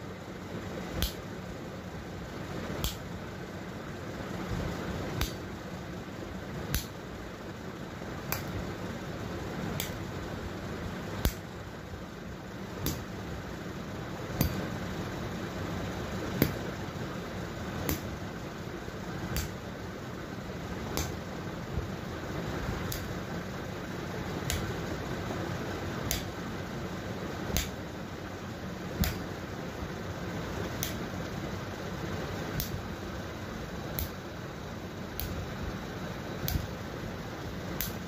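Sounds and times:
steady low hum: 0:00.0 - 0:38.0
stick smacking bare foot: 0:19.4 - 0:19.6, 0:26.1 - 0:26.3, 0:27.5 - 0:27.8, 0:29.0 - 0:29.3.

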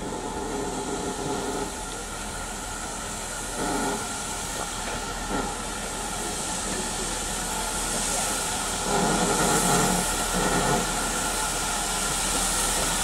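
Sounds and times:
steam hissing: 0:00.0 - 0:13.0
steam locomotive approaching: 0:00.0 - 0:13.0.

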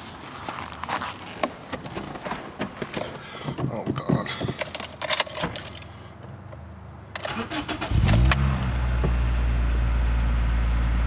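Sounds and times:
keys jangling: 0:04.4 - 0:05.9
car engine starting and idling: 0:07.0 - 0:11.0.

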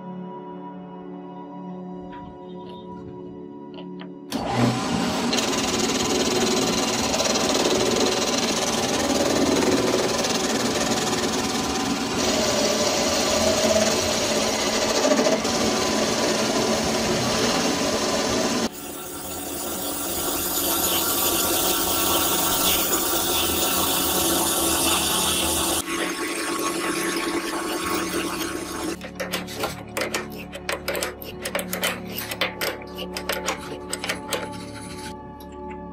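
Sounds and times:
metal lathe cutting steel: 0:04.3 - 0:29.0.

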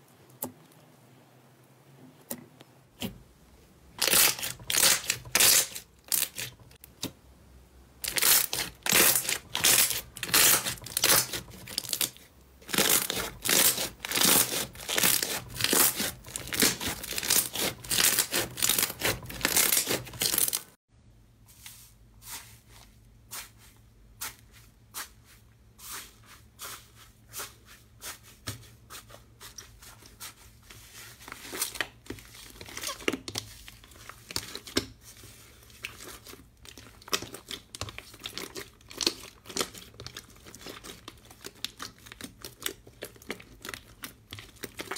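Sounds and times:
slime squelching and popping: 0:35.7 - 0:44.9.

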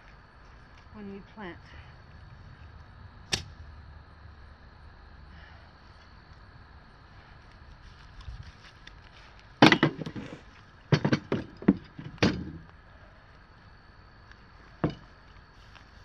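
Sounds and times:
sharp knocks and clatters: 0:09.6 - 0:12.6, 0:14.8 - 0:15.1.

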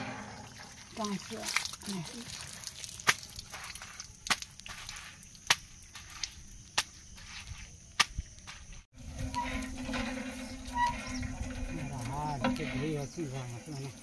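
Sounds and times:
water running from spout: 0:00.0 - 0:05.4, 0:09.0 - 0:14.0
hand pump clanking: 0:09.0 - 0:14.0.

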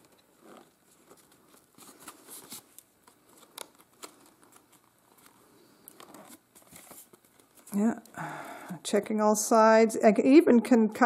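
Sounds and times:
paper rustling: 0:00.0 - 0:07.9.

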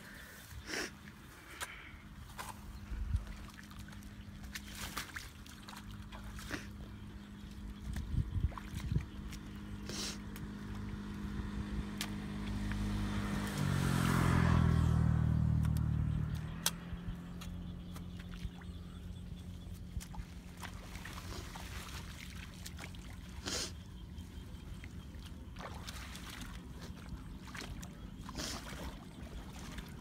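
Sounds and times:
motor engine humming: 0:05.8 - 0:25.9.

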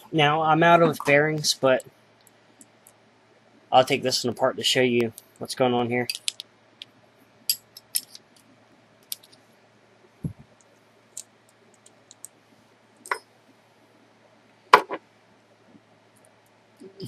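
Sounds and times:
small metallic clicks: 0:06.1 - 0:06.9, 0:07.5 - 0:09.4.

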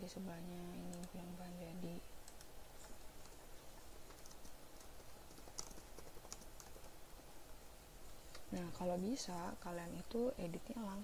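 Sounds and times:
laptop keyboard typing: 0:00.8 - 0:01.3, 0:02.2 - 0:07.3.

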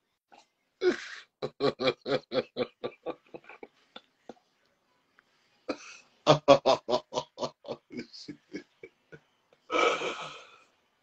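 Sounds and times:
man laughing hard: 0:01.4 - 0:03.7, 0:06.3 - 0:09.0.

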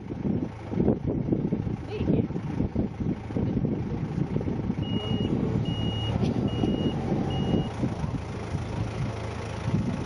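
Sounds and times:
diesel engine running: 0:00.0 - 0:10.0
warning alarm beeps: 0:04.8 - 0:07.8.

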